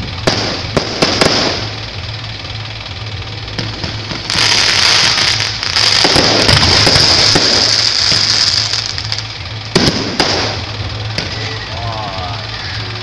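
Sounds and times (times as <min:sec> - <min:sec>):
fireworks crackling: 0:00.0 - 0:13.0
sharp firework bang: 0:00.2 - 0:01.8, 0:03.6 - 0:11.5.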